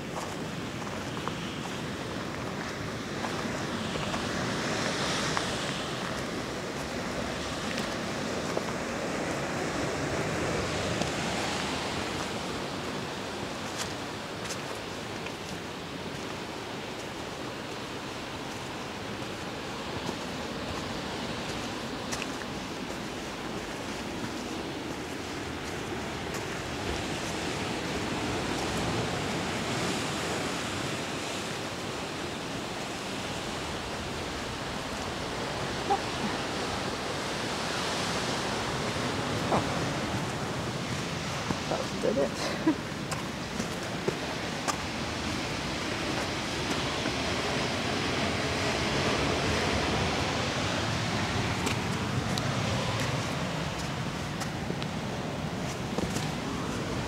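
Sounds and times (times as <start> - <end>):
footsteps on dirt trail: 0.0 - 9.2, 13.5 - 29.6, 39.4 - 47.3, 51.2 - 57.0
light wind: 0.0 - 57.0
ocean surf washing: 0.0 - 57.0.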